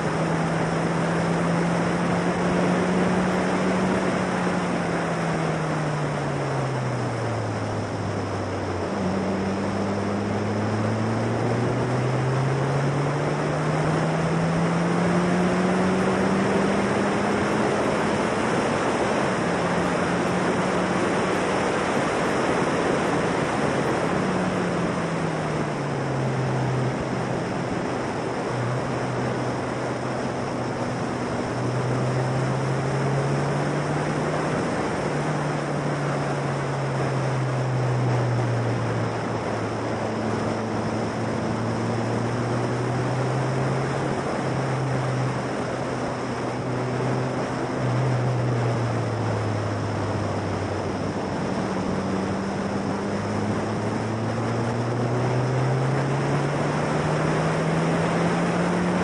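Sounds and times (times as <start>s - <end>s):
race car engine: 0.0s - 59.0s
wind rush on microphone: 0.0s - 59.0s.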